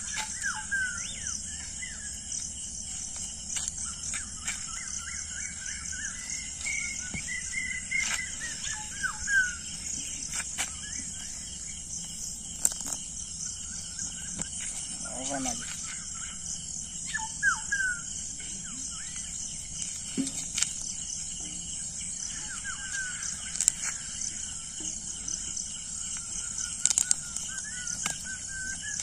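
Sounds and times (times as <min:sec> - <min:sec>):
birds chirping and whistling: 0:00.0 - 0:29.0
high-pitched hiss: 0:00.0 - 0:29.0.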